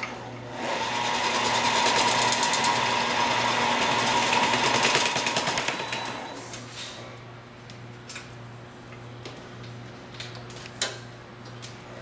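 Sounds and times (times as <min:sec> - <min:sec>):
taping machine whining and clattering: 0:00.1 - 0:06.6.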